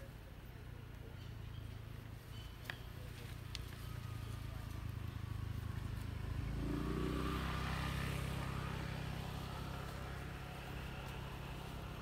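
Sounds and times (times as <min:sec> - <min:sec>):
vehicle engine hum: 0:00.0 - 0:12.0.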